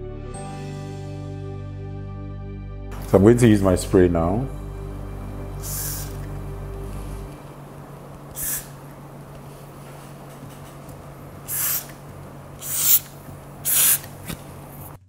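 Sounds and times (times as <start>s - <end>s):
hair spray can hissing: 5.6s - 6.3s, 8.3s - 8.9s, 11.4s - 15.0s.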